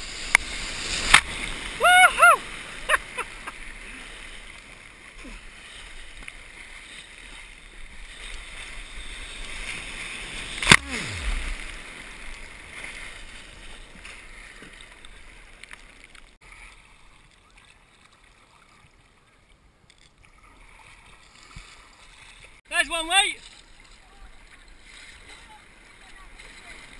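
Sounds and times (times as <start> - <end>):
sharp water slap: 0.2 - 1.8, 10.4 - 12.9
breaking surf hissing: 9.3 - 13.2.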